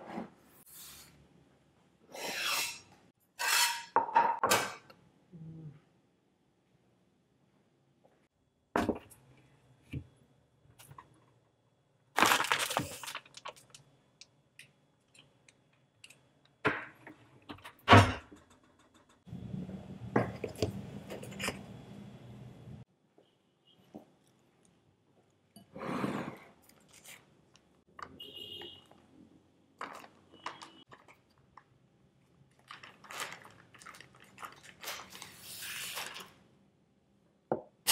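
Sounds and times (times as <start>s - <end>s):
items knocking and clattering: 29.8s - 31.5s.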